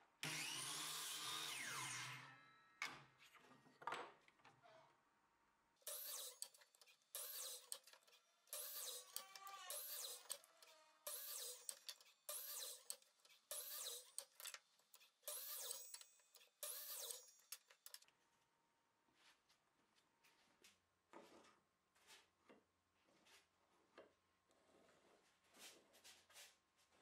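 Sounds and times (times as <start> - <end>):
miter saw cutting wood: 0.2 - 2.3, 5.9 - 6.5, 7.2 - 7.8, 8.5 - 12.9, 13.5 - 14.2.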